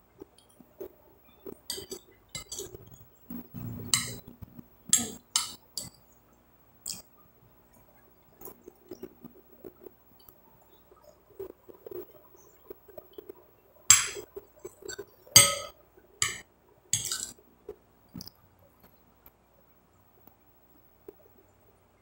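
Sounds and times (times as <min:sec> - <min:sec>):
metal spoon clinking on glass plate: 0:01.7 - 0:02.8, 0:04.9 - 0:06.0, 0:14.9 - 0:16.4, 0:17.0 - 0:17.4.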